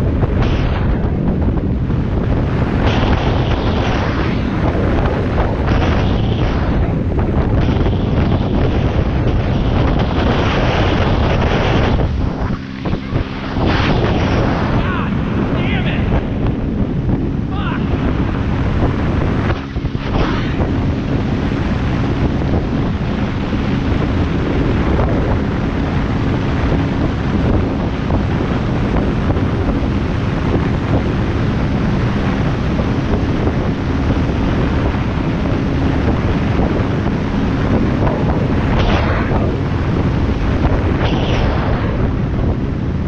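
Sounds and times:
whooshes: 0.0 - 17.2, 18.0 - 21.5, 38.4 - 43.0
wind buffeting microphone: 0.0 - 43.0.

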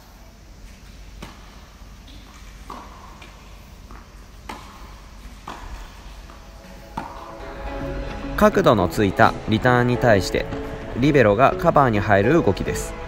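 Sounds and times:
tennis racket hitting ball: 1.2 - 9.6
tennis ball bouncing: 1.2 - 11.0.

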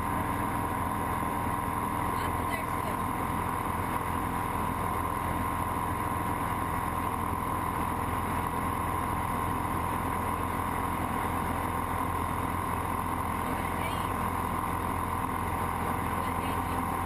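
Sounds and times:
light aircraft engine drone: 0.0 - 17.0.

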